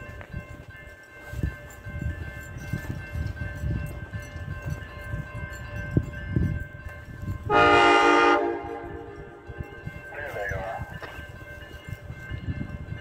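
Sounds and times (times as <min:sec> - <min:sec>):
locomotive air horn: 0:07.5 - 0:09.4.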